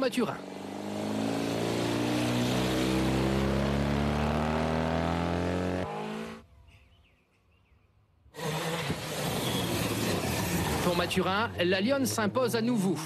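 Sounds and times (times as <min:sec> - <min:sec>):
rally car engine high revs: 0:00.4 - 0:06.4, 0:08.4 - 0:11.0
rally car rushing on gravel: 0:09.0 - 0:11.6.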